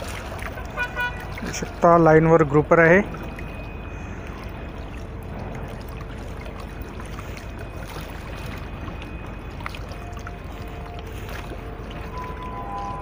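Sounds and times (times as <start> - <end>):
seawater washing: 0.0 - 13.0
wind: 0.0 - 13.0
faint steady hum: 2.6 - 13.0.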